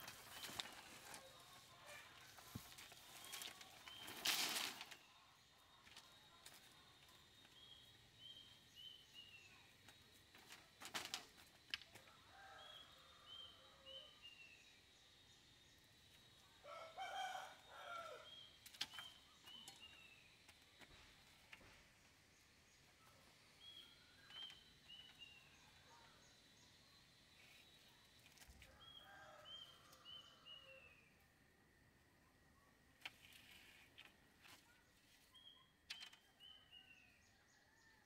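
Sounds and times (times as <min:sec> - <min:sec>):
faint bird chirps: 0:12.0 - 0:31.3, 0:32.2 - 0:38.0.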